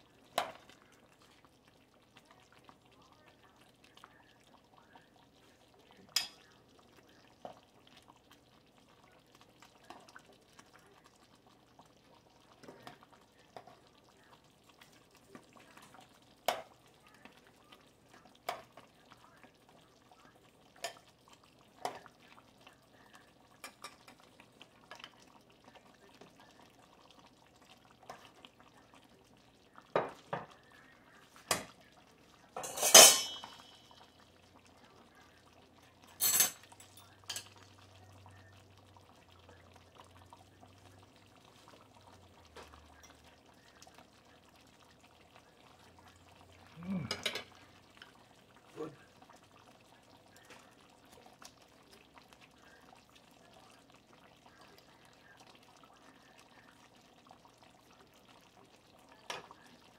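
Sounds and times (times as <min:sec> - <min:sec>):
cutlery clinking on plate: 0:32.6 - 0:33.8, 0:36.2 - 0:37.5, 0:47.1 - 0:47.5
kitchenware clinking and knocking: 0:32.6 - 0:33.8, 0:36.2 - 0:37.5, 0:47.1 - 0:47.5.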